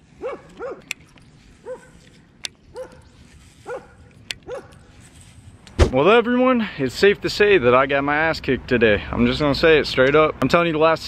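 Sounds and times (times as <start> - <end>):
dog barking: 0.2 - 0.8, 1.6 - 2.0, 2.7 - 4.8.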